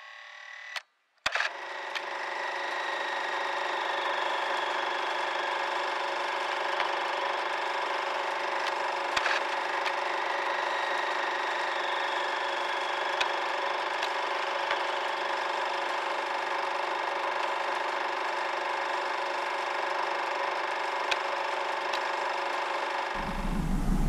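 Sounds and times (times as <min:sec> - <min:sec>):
droning hum with held tones: 0:23.2 - 0:24.0.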